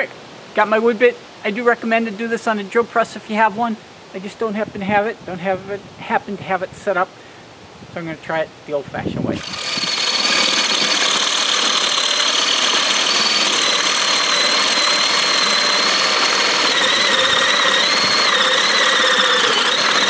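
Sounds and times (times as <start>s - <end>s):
power drill boring into wood: 9.4s - 20.0s.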